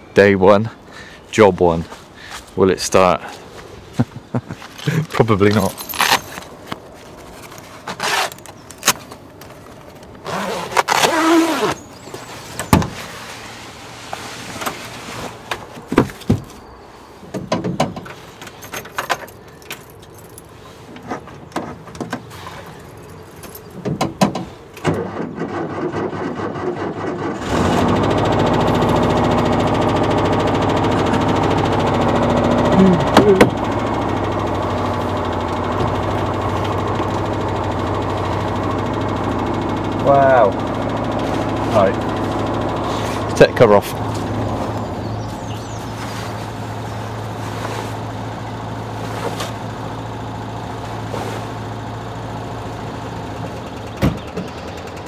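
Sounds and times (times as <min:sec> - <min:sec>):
van engine starting and idling: 0:18.0 - 0:55.0.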